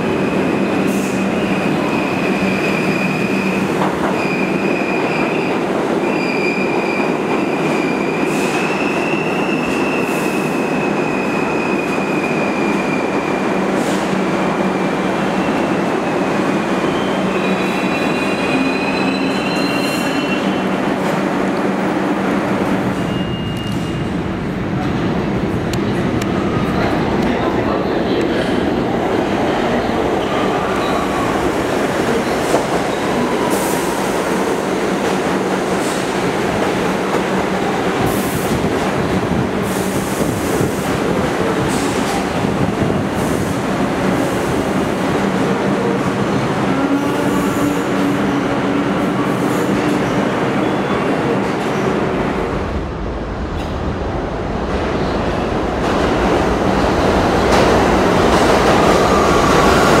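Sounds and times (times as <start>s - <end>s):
subway train on rails: 0.0s - 60.0s
wheel squeal: 16.9s - 20.6s
train passing with low rumble: 20.2s - 60.0s.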